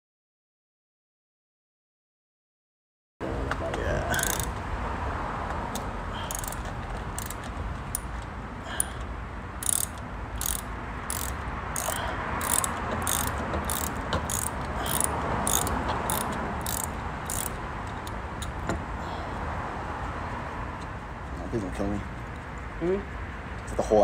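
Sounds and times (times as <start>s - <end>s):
socket ratchet clicking: 4.1s - 4.6s, 5.7s - 9.0s, 9.6s - 18.7s.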